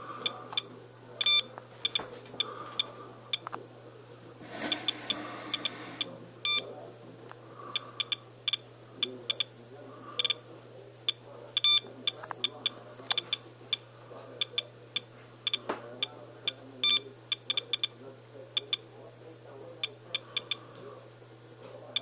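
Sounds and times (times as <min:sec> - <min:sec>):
radiation dosimeter chirping: 0:00.0 - 0:03.6, 0:04.7 - 0:06.7, 0:07.7 - 0:18.9, 0:19.8 - 0:20.7
longer electronic beeps: 0:16.8 - 0:17.9.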